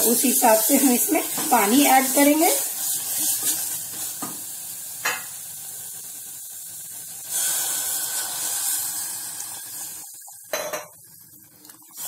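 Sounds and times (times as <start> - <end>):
spices sizzling in pot: 0.0 - 12.0
water hitting hot pan hissing: 0.0 - 12.0
spatula stirring: 1.3 - 4.3.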